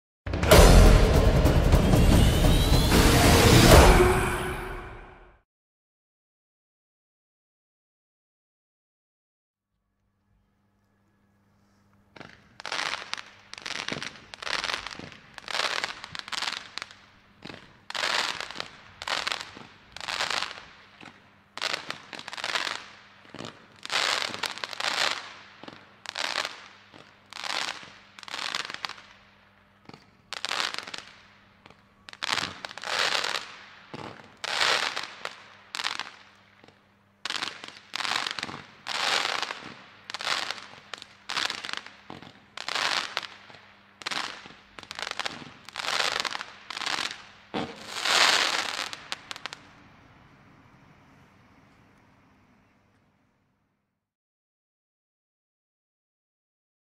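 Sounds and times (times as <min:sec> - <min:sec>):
firework shots popping and crackling: 0:12.1 - 0:50.3.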